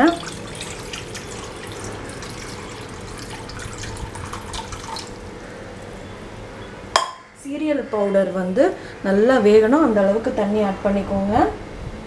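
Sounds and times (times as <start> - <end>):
water pouring from a saucepan: 0.0 - 5.9.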